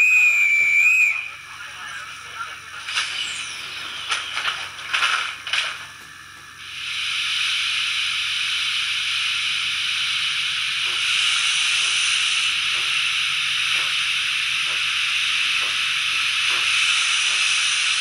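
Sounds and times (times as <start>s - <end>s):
steam hiss from speaker: 6.6s - 18.0s.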